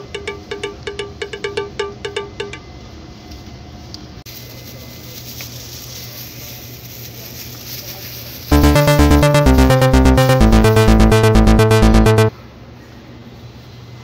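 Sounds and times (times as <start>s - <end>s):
market ambience hiss and hum: 3.0s - 8.5s
plucked music notes: 8.5s - 12.3s.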